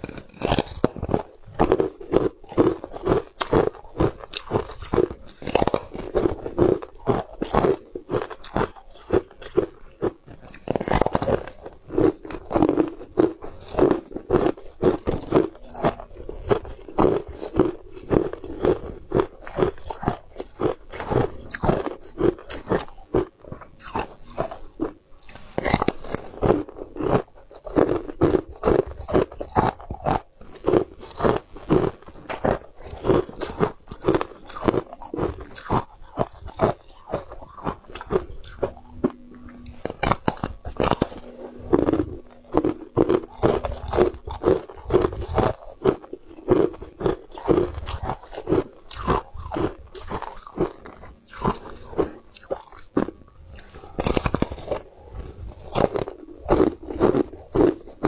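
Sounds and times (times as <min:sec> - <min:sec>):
ice cracking and crunching in teeth: 0:00.0 - 0:58.0.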